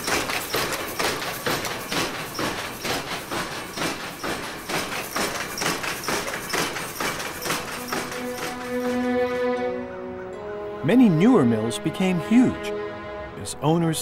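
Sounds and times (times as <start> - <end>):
power loom clattering: 0.0 - 9.7.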